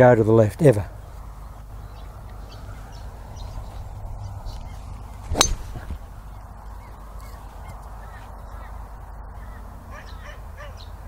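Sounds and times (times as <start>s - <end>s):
low outdoor background: 0.0s - 11.0s
golf club striking ball: 5.3s - 6.1s.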